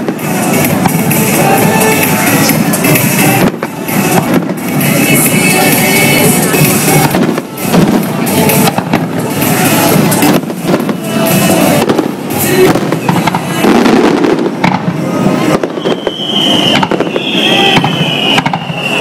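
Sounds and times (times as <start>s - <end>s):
fireworks bangs and crackling: 0.0s - 19.0s
high falling firework whistles: 12.7s - 19.0s.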